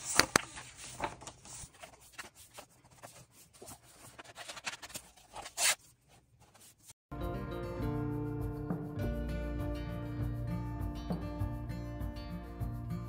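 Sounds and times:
magazine pages rustling: 0.0 - 7.0
page swish: 0.0 - 7.0.

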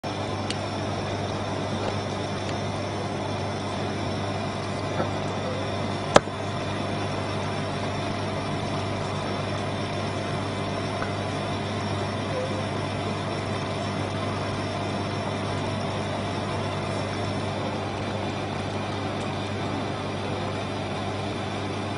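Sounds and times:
steady low hum: 0.0 - 21.9.

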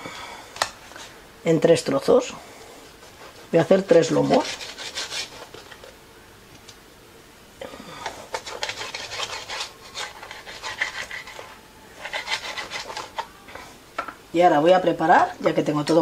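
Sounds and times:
knife sawing on cutting board: 4.0 - 5.6, 8.3 - 13.1.

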